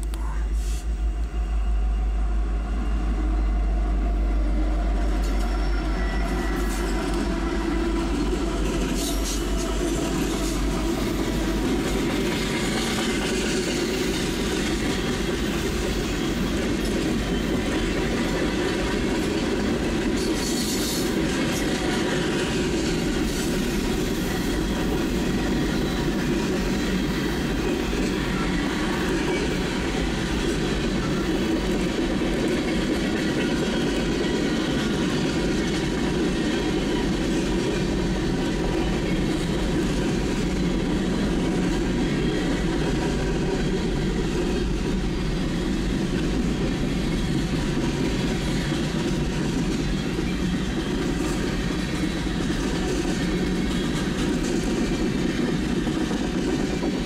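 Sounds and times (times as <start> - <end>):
diesel locomotive rumble: 0.0 - 57.0
train wheels rumbling on rails: 0.0 - 57.0
high wheel squeal: 5.1 - 7.9.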